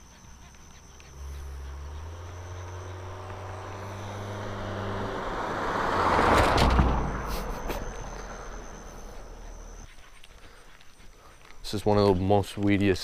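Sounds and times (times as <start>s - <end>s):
tyre noise on road: 0.0s - 13.0s
car engine hum passing by: 0.1s - 9.9s.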